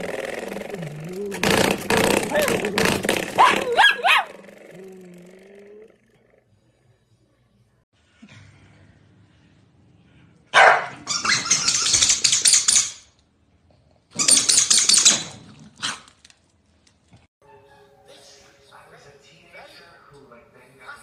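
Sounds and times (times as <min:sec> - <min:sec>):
dogs growling: 0:00.0 - 0:06.9
dogs barking: 0:03.3 - 0:04.5, 0:10.5 - 0:11.4.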